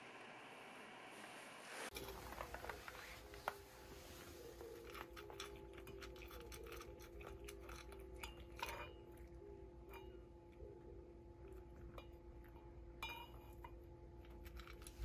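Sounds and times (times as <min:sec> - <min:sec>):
quiet steady hum: 0:00.0 - 0:15.0.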